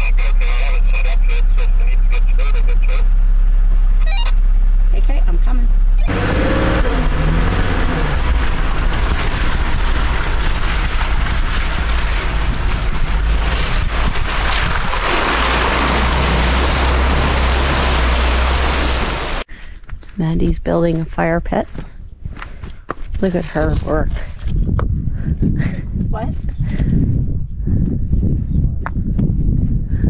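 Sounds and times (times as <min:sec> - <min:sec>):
vehicle engine running: 0:00.0 - 0:22.5
water splashing and spraying: 0:08.3 - 0:19.5.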